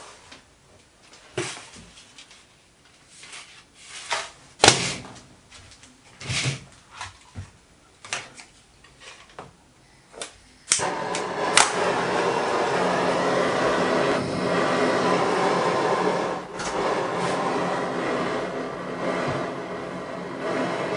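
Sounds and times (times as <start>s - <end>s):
blowtorch hissing: 10.7s - 20.9s.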